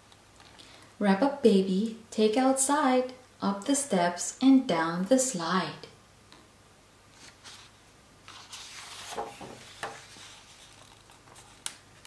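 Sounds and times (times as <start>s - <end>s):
paper rustling: 7.1s - 12.0s.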